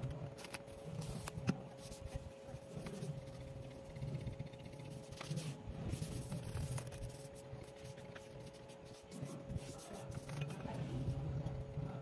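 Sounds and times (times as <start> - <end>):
faint steady hum: 0.0 - 12.0
tissue wiping laptop: 4.8 - 11.2.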